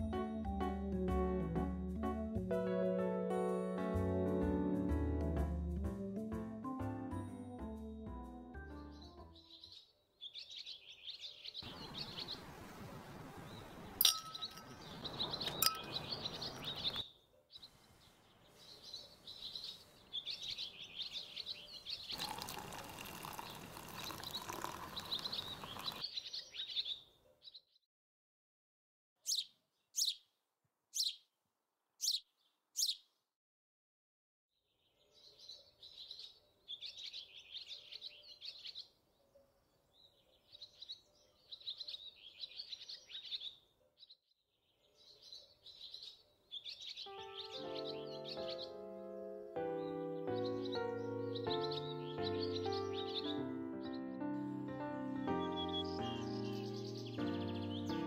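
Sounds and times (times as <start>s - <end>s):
songbirds chirping and singing: 7.8s - 12.5s, 13.4s - 27.8s, 34.6s - 58.0s.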